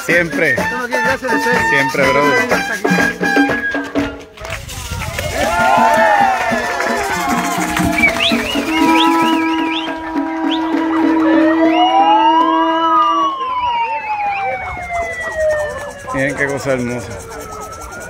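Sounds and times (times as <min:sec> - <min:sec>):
siren wail: 0:05.5 - 0:18.0
fast warbling siren: 0:06.8 - 0:18.0
steady horn tone: 0:07.2 - 0:13.3.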